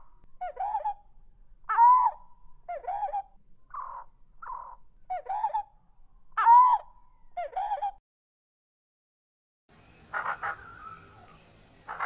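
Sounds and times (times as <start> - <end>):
harsh downward-bending bird calls: 9.9 - 12.0.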